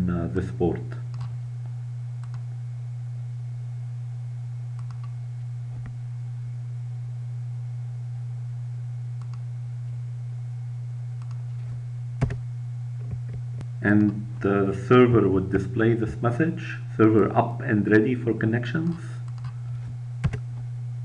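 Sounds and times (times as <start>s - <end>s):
low electrical hum: 0.0s - 21.0s
keyboard and mouse clicks: 4.8s - 5.2s, 20.2s - 20.4s.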